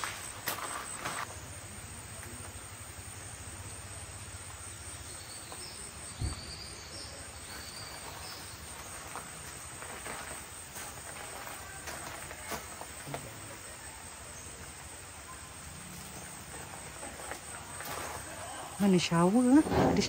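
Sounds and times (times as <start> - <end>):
insects chirping: 0.0 - 20.0
dull thump: 19.6 - 20.0.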